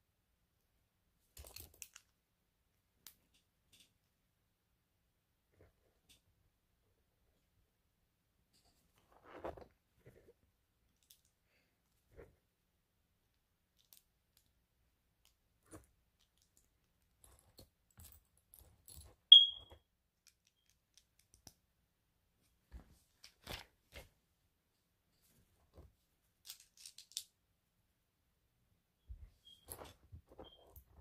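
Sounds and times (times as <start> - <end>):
plastic pieces clicking and rustling: 1.4 - 2.1, 13.7 - 14.5, 15.2 - 19.2, 20.2 - 21.6, 26.4 - 27.4
sharp high-pitched ping: 19.3 - 19.7.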